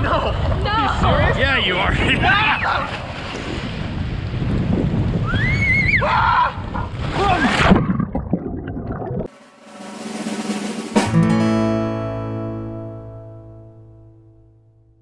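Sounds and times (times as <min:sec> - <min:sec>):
wind on microphone: 0:00.0 - 0:09.3
water splashing and churning: 0:00.0 - 0:09.6
muffled underwater bubbling: 0:07.6 - 0:09.3.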